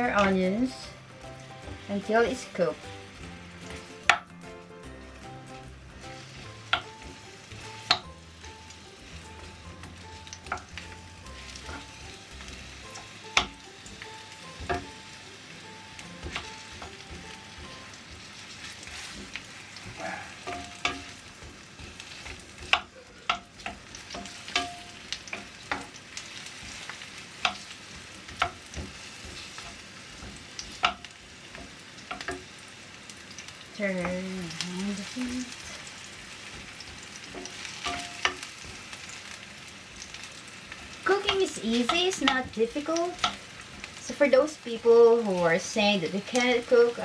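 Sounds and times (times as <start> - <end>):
onions sizzling in oil: 0.0 - 47.0
wooden spoon knocking on pan: 3.7 - 4.4, 6.3 - 8.2, 9.4 - 15.0, 16.0 - 32.5, 36.5 - 39.2, 40.8 - 43.9.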